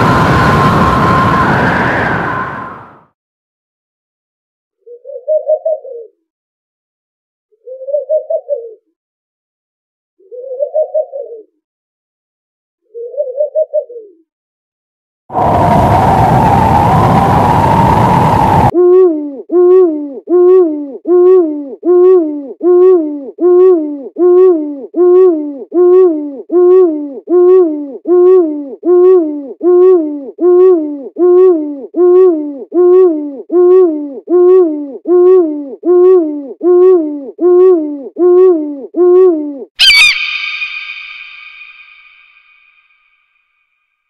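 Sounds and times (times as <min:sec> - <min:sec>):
owl hooting: 0:18.9 - 0:42.8.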